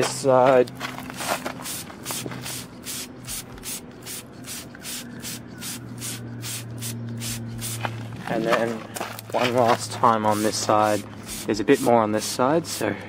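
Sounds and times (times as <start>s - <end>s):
spray bottle hissing: 1.2s - 8.0s, 10.1s - 12.8s.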